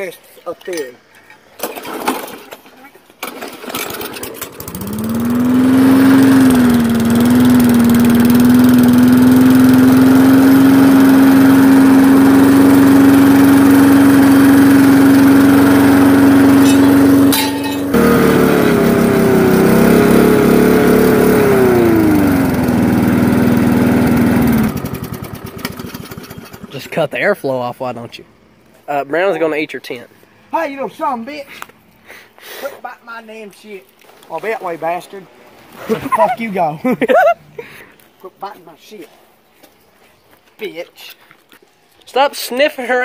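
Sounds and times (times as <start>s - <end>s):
lawn mower engine running: 3.2s - 27.0s.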